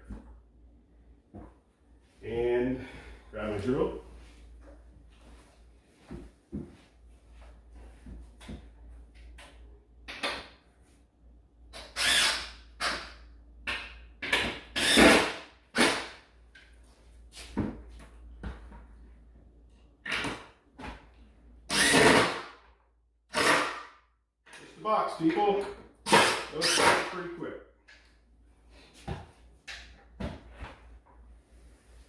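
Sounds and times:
power drill driving screws: 11.8s - 13.0s, 14.8s - 16.0s, 21.7s - 22.4s, 23.3s - 23.7s, 26.1s - 27.0s.

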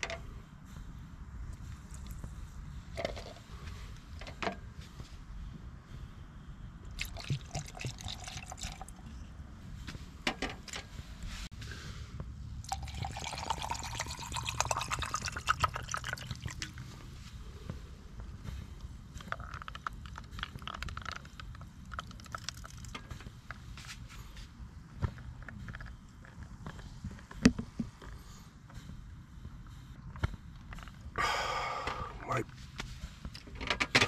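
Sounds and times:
drink fizzing: 6.9s - 9.1s, 12.6s - 16.8s, 19.3s - 23.0s
soda water pouring: 6.9s - 9.1s, 12.6s - 16.8s, 21.9s - 22.9s.

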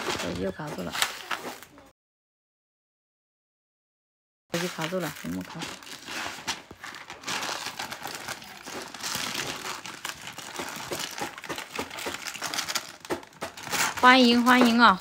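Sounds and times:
plastic bag crinkling: 4.6s - 15.0s.

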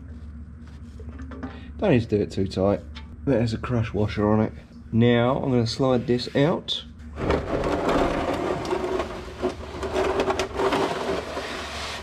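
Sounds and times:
plastic pan scraping on concrete: 7.2s - 12.0s.

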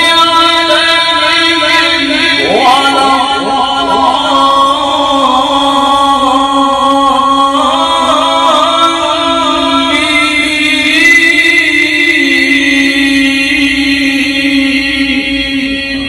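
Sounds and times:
man reciting melodically: 0.0s - 16.0s.

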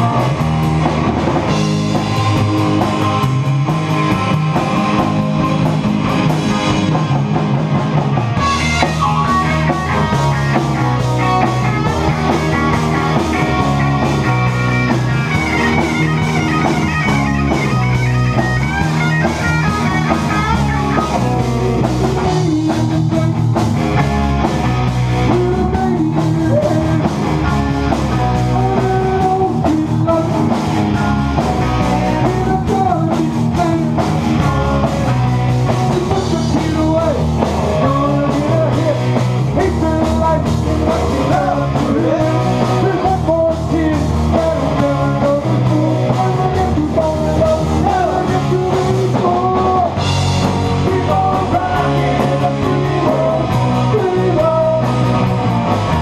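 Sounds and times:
bass guitar: 0.0s - 56.0s
drum kit: 0.0s - 56.0s
electric guitars: 0.0s - 56.0s
man singing: 20.4s - 23.6s, 25.2s - 55.4s.

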